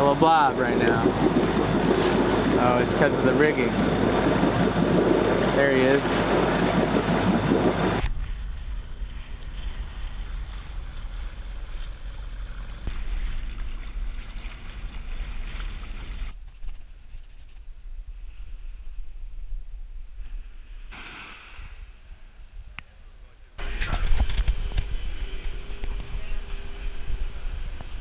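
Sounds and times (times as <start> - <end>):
wind buffeting microphone: 0.0 - 16.3
water rushing past boat: 0.0 - 16.4.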